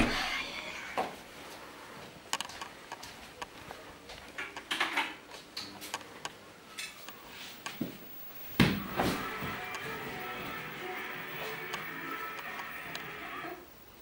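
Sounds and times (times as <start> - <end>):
footsteps on wooden floor: 8.6 - 10.7.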